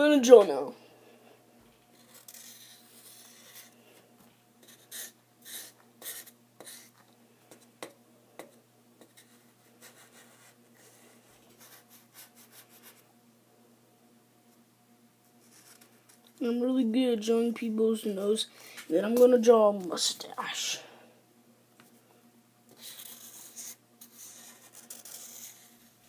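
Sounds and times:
marker drawing on paper: 2.0 - 3.7, 4.6 - 7.0, 22.7 - 25.9.

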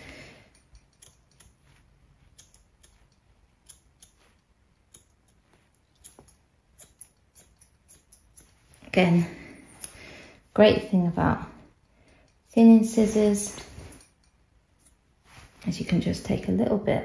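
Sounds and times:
scissors snipping hair: 0.4 - 9.2, 11.8 - 15.2.

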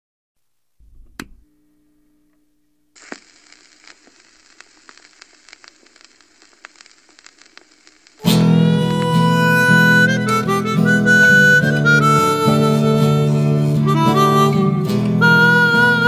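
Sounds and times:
low thump with sharp click: 0.8 - 1.4
steady crackle with clicks: 2.3 - 11.1.

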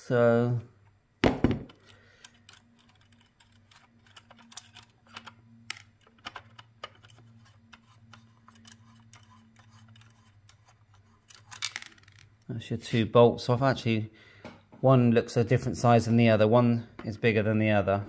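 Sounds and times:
fingers scraping on metal: 6.9 - 11.6.

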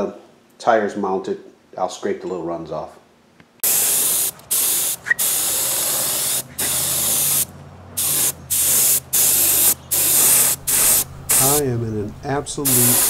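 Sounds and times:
spray gun hissing bursts: 3.6 - 13.0.

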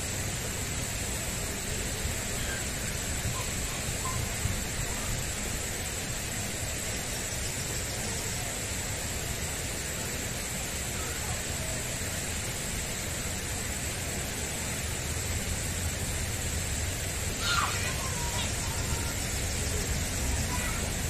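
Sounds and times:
faint high-pitched tone: 2.3 - 5.2
distant road traffic hum: 12.8 - 21.0.

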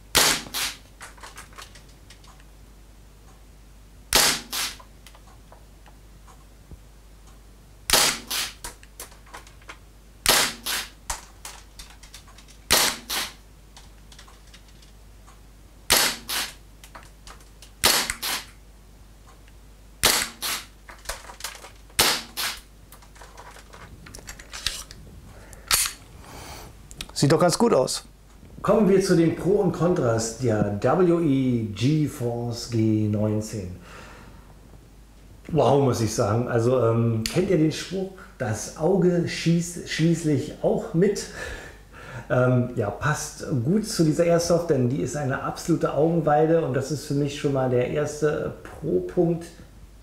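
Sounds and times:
airsoft pistol shots: 0.1 - 0.8, 4.1 - 4.8, 7.9 - 8.7, 10.2 - 11.0, 12.7 - 13.4, 15.9 - 16.6, 17.8 - 18.5, 20.0 - 20.7, 22.0 - 22.6.

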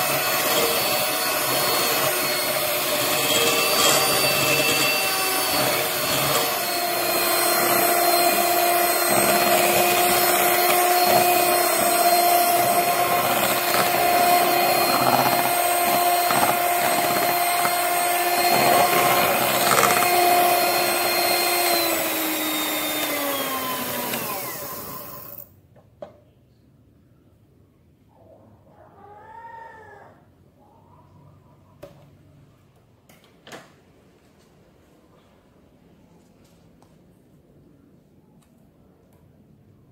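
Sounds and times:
electric hand mixer whine: 0.0 - 25.5.

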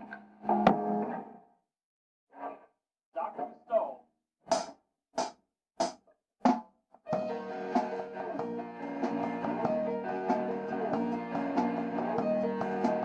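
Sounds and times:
live rock band: 7.2 - 13.0.

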